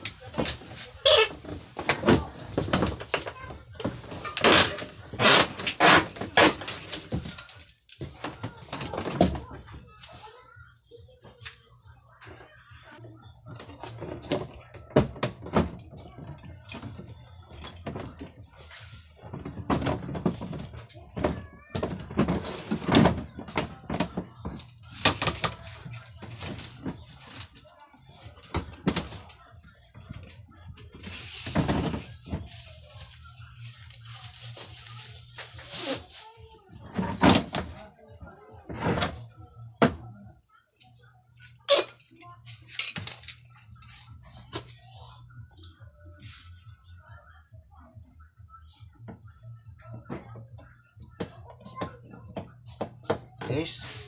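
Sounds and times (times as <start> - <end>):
plastic cabinet knocks and scrapes: 0.3 - 7.3, 19.2 - 27.2, 31.0 - 32.7, 36.8 - 37.8
plastic hose being fitted: 4.4 - 6.6.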